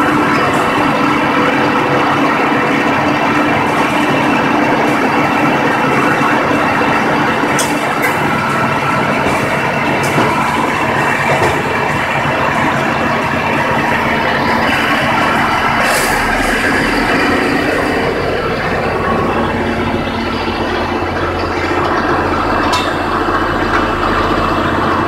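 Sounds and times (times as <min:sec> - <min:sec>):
baler mechanical din: 0:00.0 - 0:25.0
tractor diesel engine running: 0:00.0 - 0:25.0.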